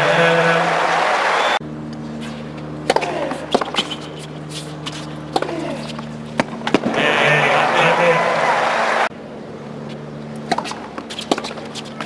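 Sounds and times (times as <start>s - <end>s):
low stadium hum: 0.0s - 12.0s
tennis racket hitting ball: 2.2s - 7.5s, 10.4s - 12.0s.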